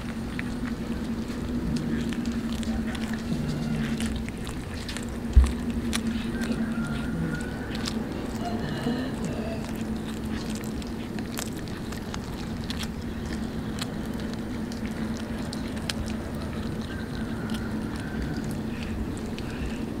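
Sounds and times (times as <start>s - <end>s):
kitten chewing fish: 0.0s - 20.0s
small clicks and crunches: 0.0s - 20.0s
steady low hum: 0.0s - 20.0s.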